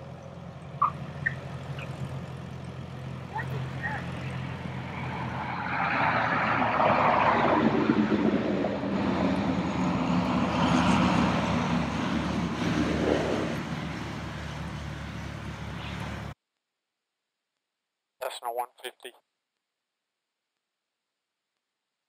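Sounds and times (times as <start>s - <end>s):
propeller airplane engine running: 0.0s - 5.4s, 7.5s - 16.4s.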